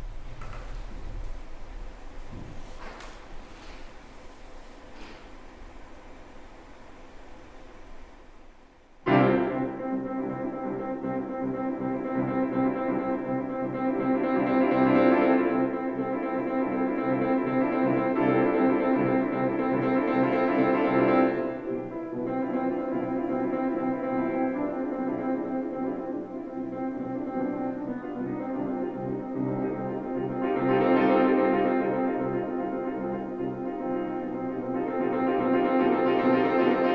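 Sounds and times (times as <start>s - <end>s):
grand piano chords: 9.0s - 36.9s.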